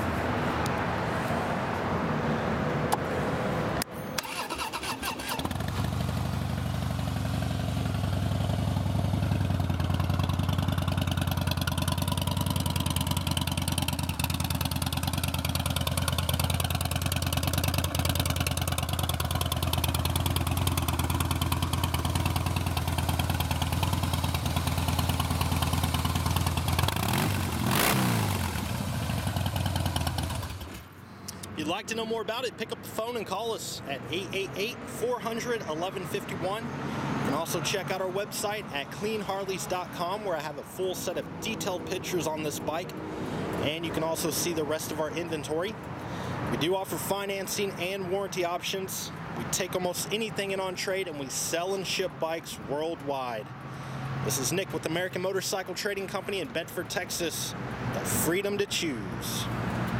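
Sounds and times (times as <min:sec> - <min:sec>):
motorcycle starter cranking: 0:03.9 - 0:06.1
motorcycle engine revving: 0:04.0 - 0:30.9
motorcycle engine idling: 0:05.2 - 0:30.9.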